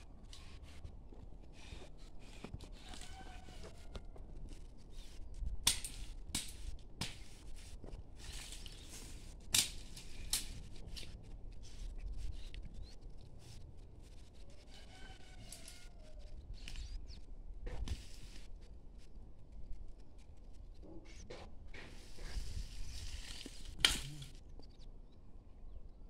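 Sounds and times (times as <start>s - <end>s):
dry leaves rustling and crackling: 7.4s - 12.5s, 22.4s - 24.4s.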